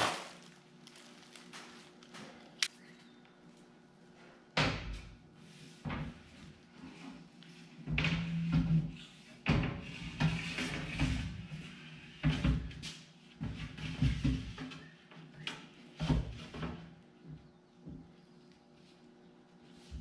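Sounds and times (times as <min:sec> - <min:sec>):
plastic packaging rustling: 0:00.0 - 0:02.8.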